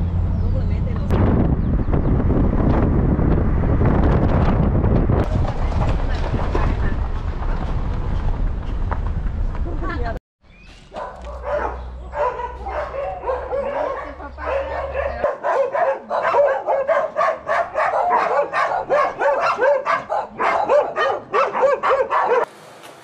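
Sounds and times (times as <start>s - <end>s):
dogs barking: 10.9s - 22.5s.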